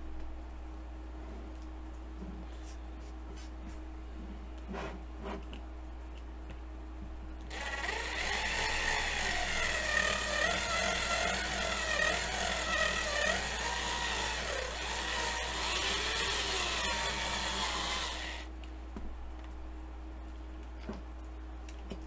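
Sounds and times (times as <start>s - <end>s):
small high-speed drill whining: 7.5s - 18.5s.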